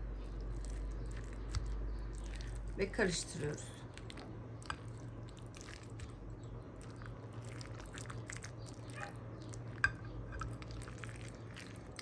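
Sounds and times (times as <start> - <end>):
wet squelching: 3.8 - 9.6.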